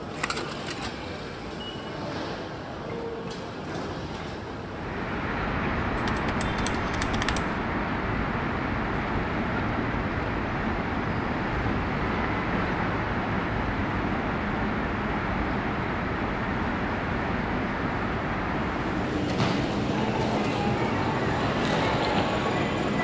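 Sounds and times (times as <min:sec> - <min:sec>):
road traffic: 0:04.7 - 0:23.0.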